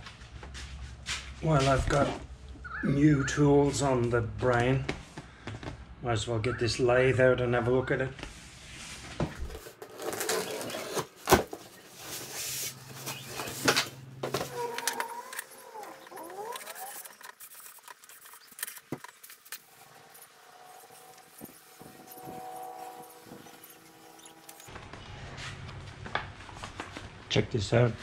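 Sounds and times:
packaging and paper rustling: 9.5s - 24.7s.

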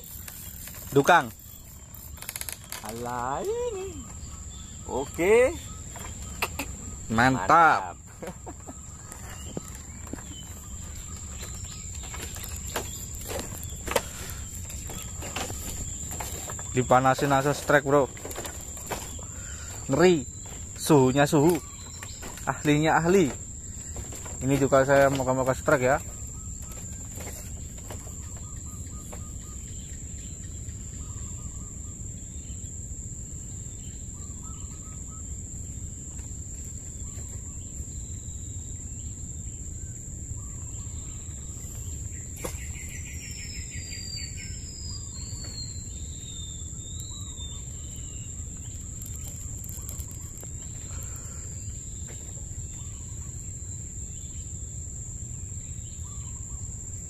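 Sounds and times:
bird calling: 0.0s - 32.0s, 40.4s - 53.8s
high-pitched insect trill: 0.0s - 57.0s.

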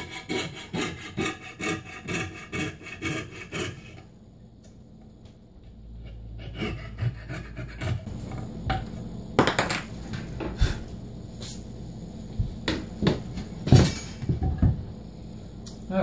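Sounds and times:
coping saw rasping through wood: 0.0s - 4.0s, 6.4s - 8.1s.

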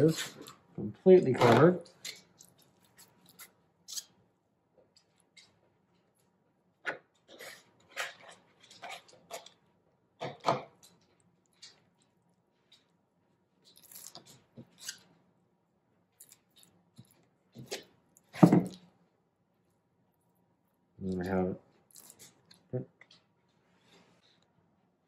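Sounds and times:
thump on cutting board: 18.4s - 18.7s.

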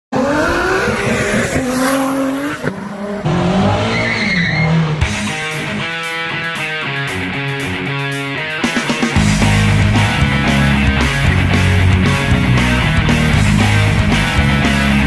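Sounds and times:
car engine revving: 0.1s - 5.8s
rock music with guitar: 5.0s - 15.0s.

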